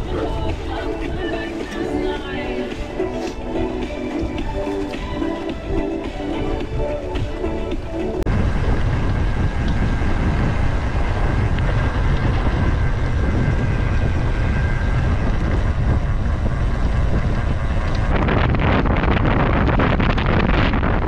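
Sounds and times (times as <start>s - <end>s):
wind buffeting microphone: 0.0s - 21.0s
bike rattling over trail: 8.3s - 21.0s.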